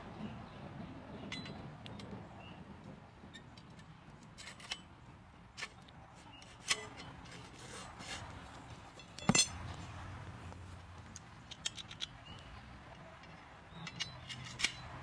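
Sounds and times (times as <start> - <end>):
metal rod scraping: 5.6 - 9.7
metal rods clinking: 8.8 - 9.9.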